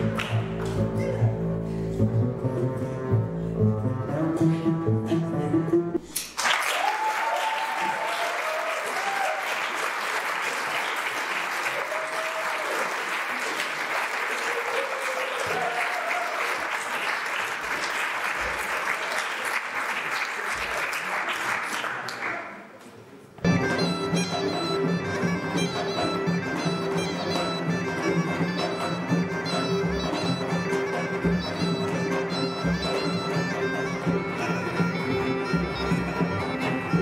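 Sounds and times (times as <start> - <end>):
audience applauding: 0.0 - 0.8, 6.2 - 22.8.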